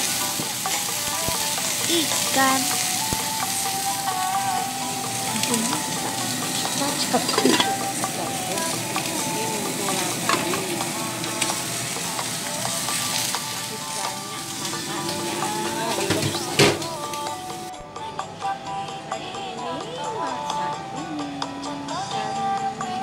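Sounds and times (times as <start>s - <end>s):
fish sizzling in a pan: 0.0s - 17.7s.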